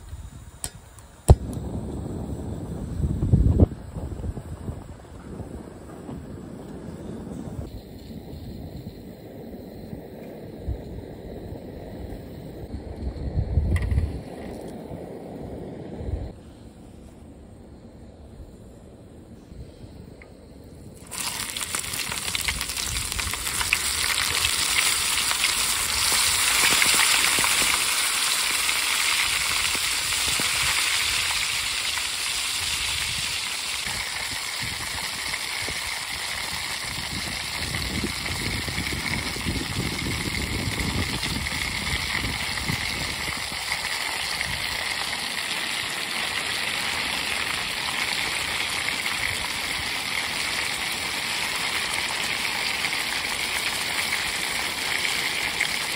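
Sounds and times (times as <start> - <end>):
oil sizzling: 21.0 - 55.9.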